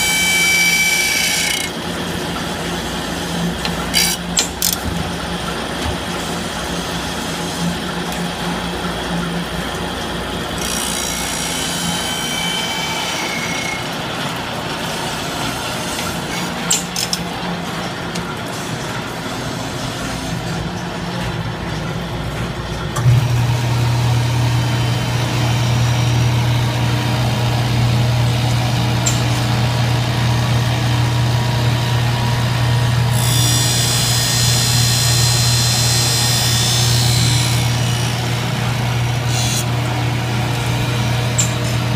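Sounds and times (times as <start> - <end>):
grinding machines running: 0.0 - 41.9
deep motor hum: 20.7 - 41.9.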